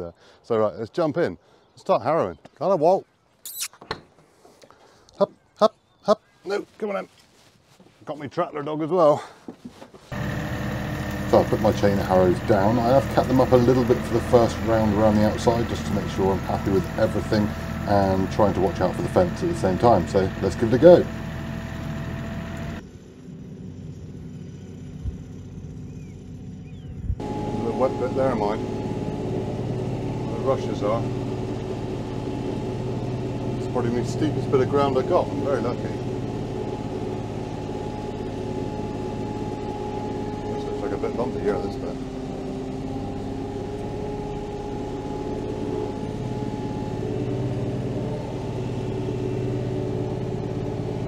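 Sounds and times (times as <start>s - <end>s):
tractor diesel engine running: 10.1s - 51.0s.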